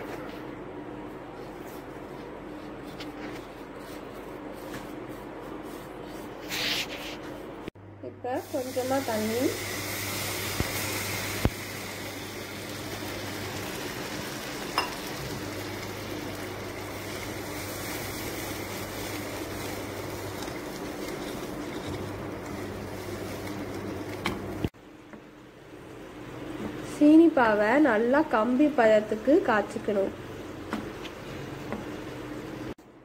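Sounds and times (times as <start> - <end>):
syrup simmering hiss: 8.3 - 20.1.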